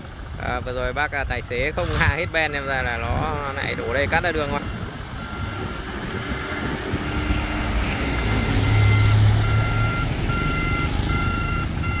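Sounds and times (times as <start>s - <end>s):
truck engine running: 0.0s - 12.0s
reverse alarm beeping: 4.4s - 12.0s.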